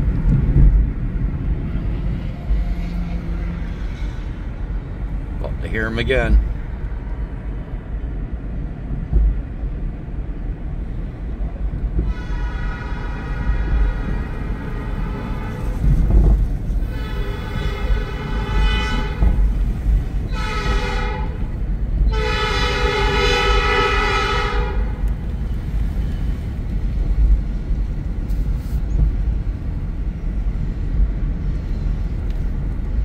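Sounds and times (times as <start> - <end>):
low road rumble: 0.0 - 33.0
locomotive air horn blasts: 12.0 - 25.1.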